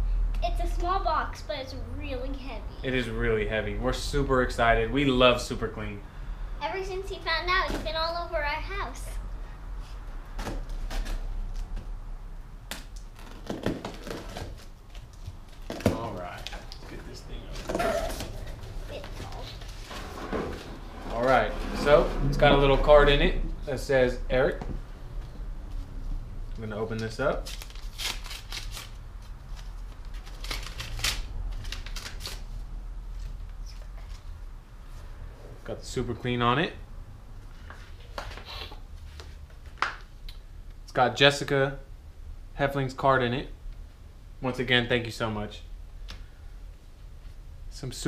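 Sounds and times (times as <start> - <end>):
cardboard scraping and rustling: 16.9 - 22.8.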